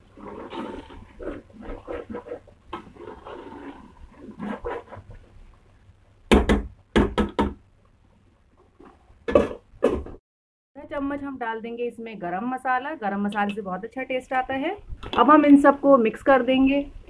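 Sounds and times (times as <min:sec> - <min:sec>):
ladle mashing food in a pot: 0:00.2 - 0:05.2.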